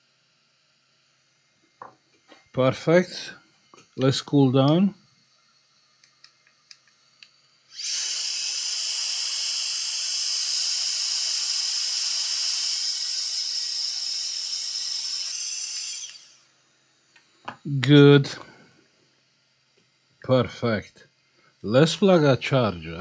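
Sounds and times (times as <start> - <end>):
air jet hissing: 7.7 - 16.5.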